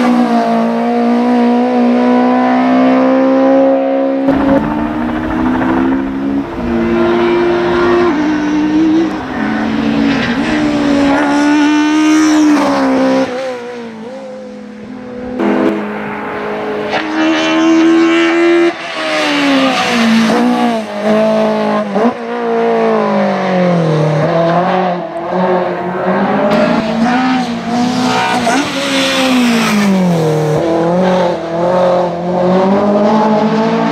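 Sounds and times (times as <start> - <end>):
race car engine revving: 4.0 - 13.6.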